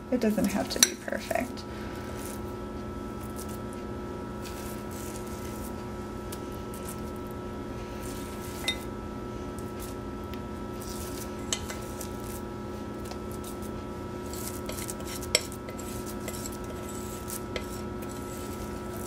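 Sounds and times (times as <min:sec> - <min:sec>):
steady electrical hum: 0:00.0 - 0:19.0
spoon clinking against glass bowl: 0:08.6 - 0:08.8.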